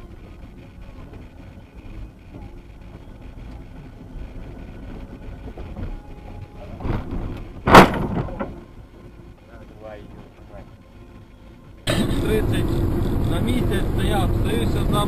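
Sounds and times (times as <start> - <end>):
car crash: 7.6 - 8.6
vehicle noise: 11.8 - 15.0.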